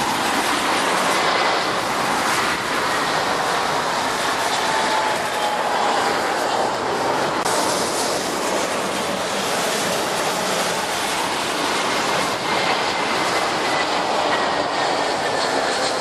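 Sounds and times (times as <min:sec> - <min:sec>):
high engine whine: 0:00.0 - 0:16.0
jet engines roaring: 0:00.0 - 0:16.0.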